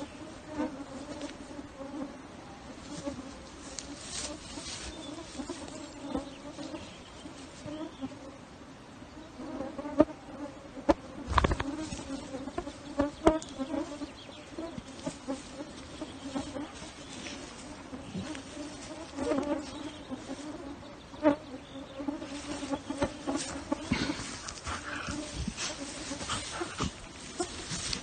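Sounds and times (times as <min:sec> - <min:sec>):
midges buzzing: 0:10.9 - 0:28.0.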